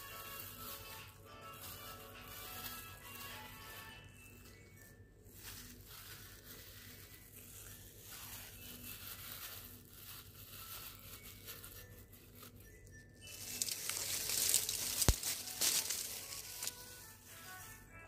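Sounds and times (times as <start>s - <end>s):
plastic gloves crinkling: 0.0s - 18.0s.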